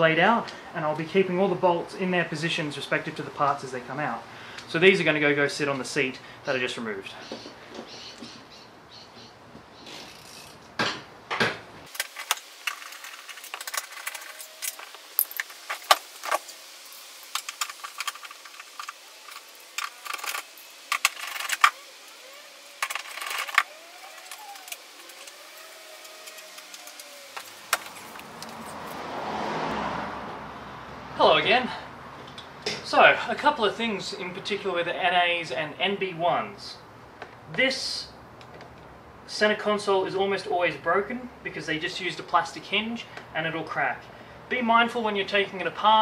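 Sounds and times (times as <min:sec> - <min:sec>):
hiss: 0:11.9 - 0:28.2
metal parts and tools clinking: 0:11.9 - 0:28.8.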